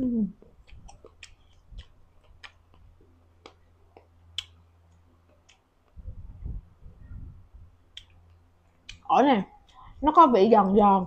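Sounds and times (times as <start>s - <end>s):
crunchy fruit chewing: 0.4s - 5.7s
mouth clicks: 0.4s - 6.0s.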